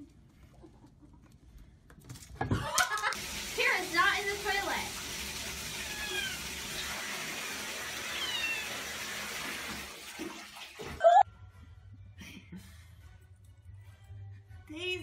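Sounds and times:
toilet water rushing: 0:03.2 - 0:11.0
cat meowing: 0:05.8 - 0:06.6, 0:08.1 - 0:08.8.

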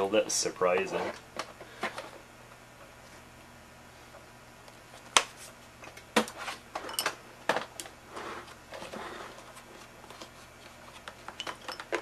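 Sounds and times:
plastic rubbing and scraping: 0:08.1 - 0:11.3
plastic parts knocking and clicking: 0:11.0 - 0:12.0.

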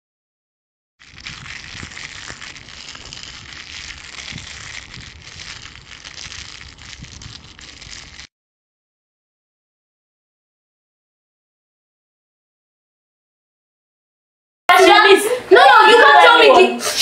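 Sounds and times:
faint crackles: 0:01.0 - 0:08.3.

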